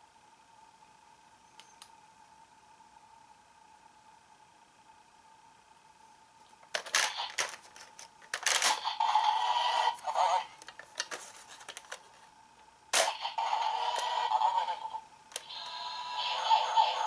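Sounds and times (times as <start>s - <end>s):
plastic toy clicks and clatter: 6.7s - 8.8s
toy electronic tone: 8.6s - 10.5s, 13.0s - 17.0s.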